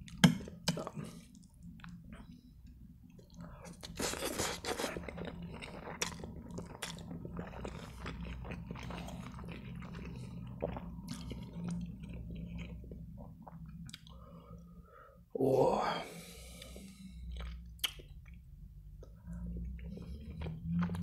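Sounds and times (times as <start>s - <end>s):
slurp of noodles: 3.8s - 5.0s.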